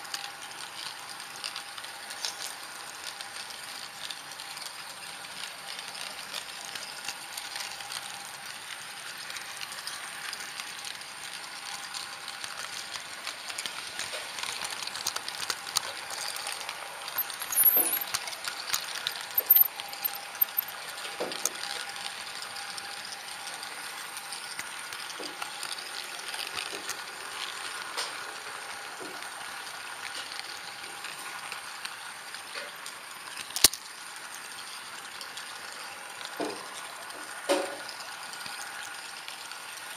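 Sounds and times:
model train running on track: 0.0s - 39.9s
wheels clicking on rails: 0.0s - 39.9s.

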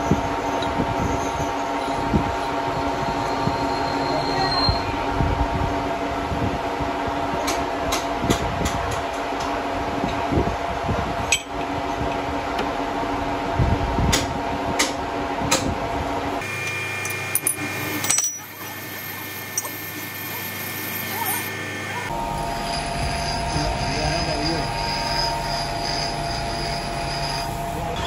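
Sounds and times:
different machine hum: 0.0s - 28.0s
lathe humming: 16.4s - 28.0s.

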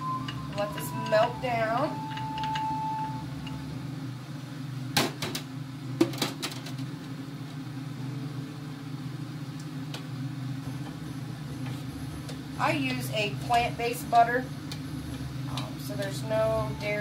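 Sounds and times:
short high tone: 0.0s - 3.6s
steady low hum: 0.0s - 17.0s.

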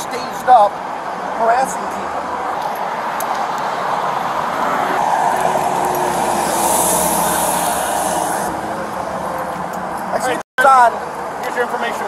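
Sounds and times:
road traffic noise: 0.0s - 12.0s
hiss: 6.3s - 8.5s.

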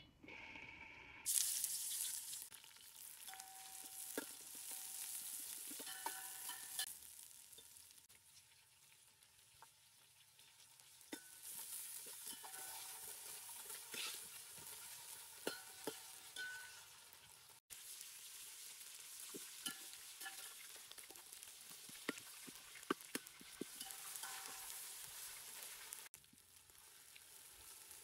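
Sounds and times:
onions sizzling in hot oil: 1.2s - 28.0s
metal spatula scraping pot: 3.2s - 6.9s, 10.1s - 17.0s, 19.4s - 26.1s.

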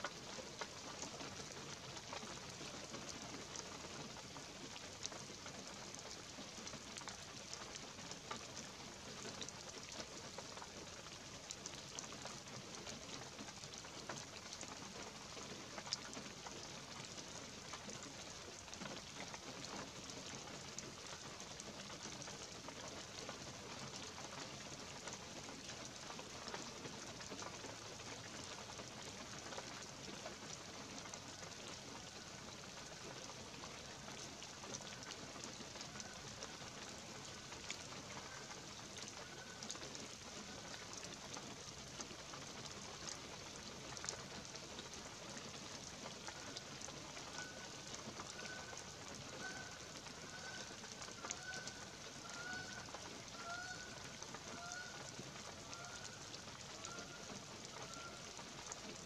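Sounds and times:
light rain on trees: 0.0s - 59.0s
faint bird calls: 47.3s - 58.3s.

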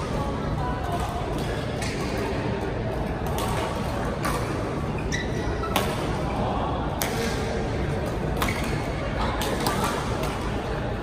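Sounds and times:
badminton rackets hitting shuttlecocks: 3.0s - 4.8s, 5.6s - 6.2s, 7.0s - 10.7s.

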